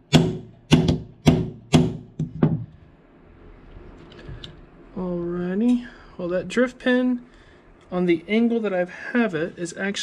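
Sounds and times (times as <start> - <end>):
hammer striking metal punch: 0.0 - 2.6.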